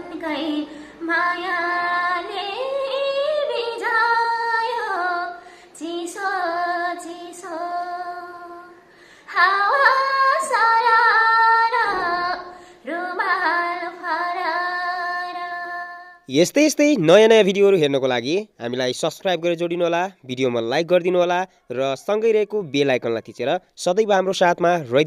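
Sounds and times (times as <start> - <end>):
woman singing unaccompanied: 0.0 - 16.2
singer breathing: 0.7 - 1.0, 5.4 - 5.8, 8.8 - 9.3, 12.5 - 12.9.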